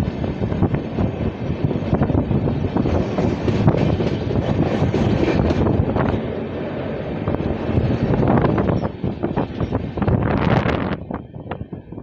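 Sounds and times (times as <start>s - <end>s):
train wheels rumbling on rails: 0.0s - 12.0s
wheels clacking over rail joints: 1.6s - 6.5s.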